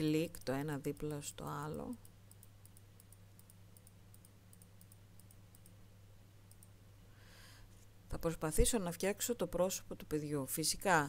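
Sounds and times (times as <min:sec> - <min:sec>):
low steady hum: 0:00.0 - 0:11.0
faint computer mouse clicks: 0:01.9 - 0:05.8, 0:06.5 - 0:06.8.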